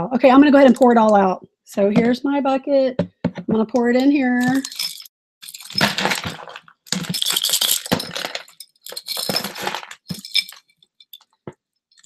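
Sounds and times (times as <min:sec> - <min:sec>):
jewelry clattering into a bucket: 0:04.4 - 0:11.4.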